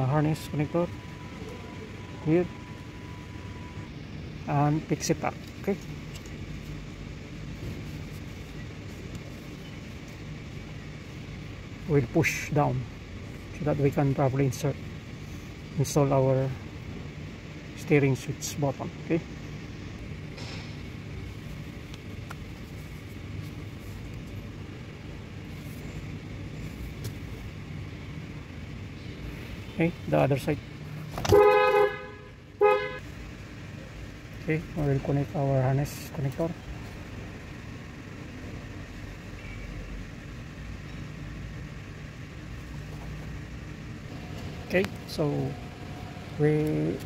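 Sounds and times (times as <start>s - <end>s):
low machinery hum: 0.0s - 47.0s.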